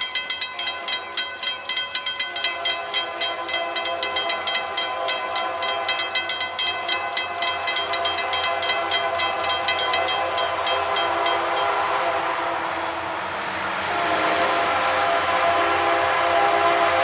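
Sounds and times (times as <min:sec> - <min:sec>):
railroad crossing bell ringing: 0:00.0 - 0:13.3
train rumble: 0:00.0 - 0:17.0
locomotive horn: 0:13.7 - 0:17.0.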